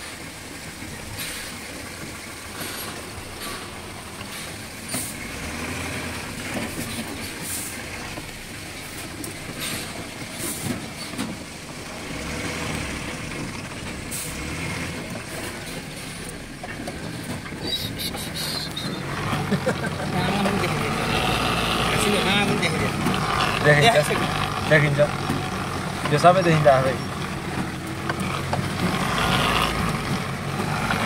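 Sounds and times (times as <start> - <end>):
truck diesel engine running: 0.0 - 31.0
cab rattles: 6.2 - 31.0.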